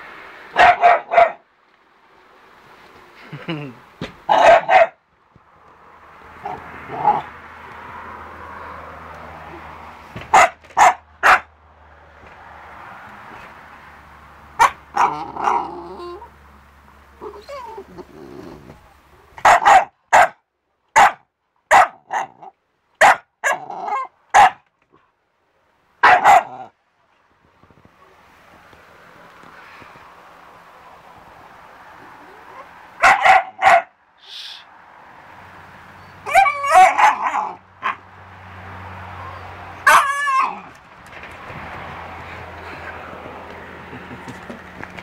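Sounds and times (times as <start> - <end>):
puppy barking: 0.5 - 1.4, 4.3 - 5.0, 6.4 - 7.3, 10.3 - 11.5, 14.6 - 16.3, 19.3 - 24.7, 26.0 - 26.7, 32.3 - 34.0, 36.2 - 38.1, 39.2 - 40.8
puppy growling: 6.3 - 7.4, 14.9 - 16.4, 17.2 - 19.3.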